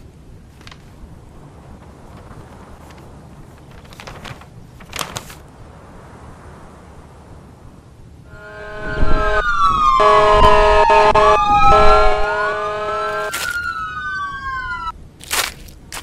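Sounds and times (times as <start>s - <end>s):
steady held chord: 8.3s - 13.3s
wailing siren-like tone: 8.3s - 14.9s.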